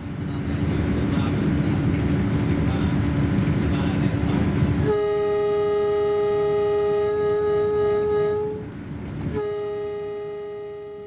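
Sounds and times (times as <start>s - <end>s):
train rumbling: 0.0s - 11.0s
train horn blasts: 4.8s - 11.0s.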